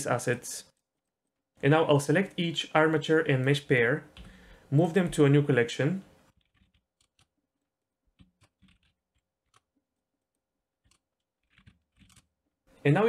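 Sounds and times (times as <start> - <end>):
keyboard and mouse clicks: 4.1 - 4.4, 8.1 - 9.7, 10.8 - 12.3.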